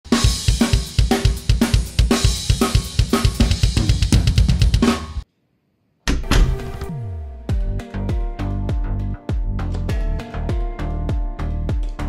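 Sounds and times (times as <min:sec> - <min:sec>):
fast drum-kit beat: 0:00.0 - 0:05.2.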